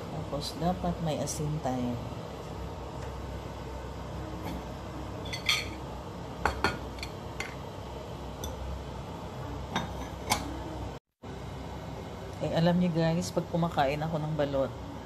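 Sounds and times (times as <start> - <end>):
steady low hum: 0.0 - 15.0
dishes clinking and knocking: 5.2 - 5.8, 6.4 - 7.6, 9.7 - 10.6.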